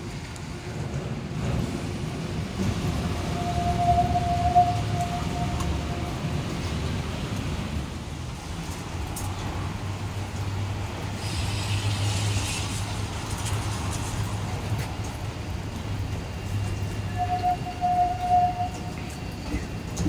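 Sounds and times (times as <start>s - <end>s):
tram rumbling over rail points: 0.0s - 20.0s
brief hiss: 11.2s - 12.9s.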